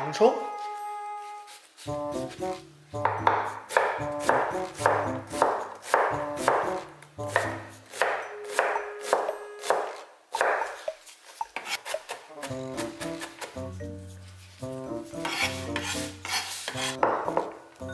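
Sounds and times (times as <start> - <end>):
background music with bass: 1.9 - 5.4
knife chopping on wooden board: 2.3 - 11.0, 15.2 - 17.6.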